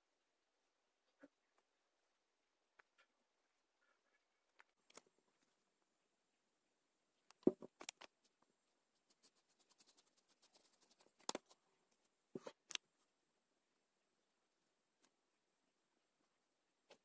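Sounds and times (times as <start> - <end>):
marker pen and paper tapping: 11.0 - 11.6.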